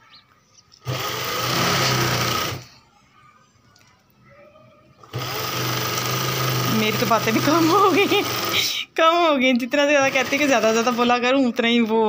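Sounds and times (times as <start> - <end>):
sewing machine stitching: 0.8 - 2.7, 5.0 - 8.8, 10.0 - 11.2.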